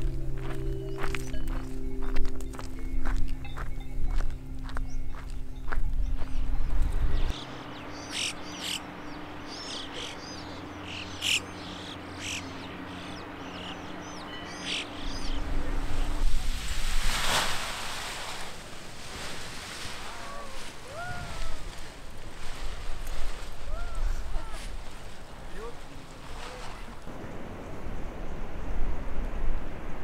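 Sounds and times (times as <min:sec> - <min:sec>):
small birds chirping: 0:00.0 - 0:16.4
wind buffeting microphone: 0:00.0 - 0:30.0
low gliding bird calls: 0:03.6 - 0:16.2, 0:23.5 - 0:25.5.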